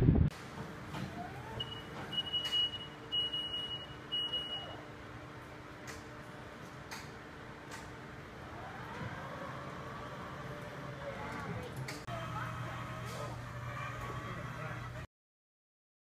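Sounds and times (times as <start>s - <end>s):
lift motion alarm beeping: 1.2s - 4.9s.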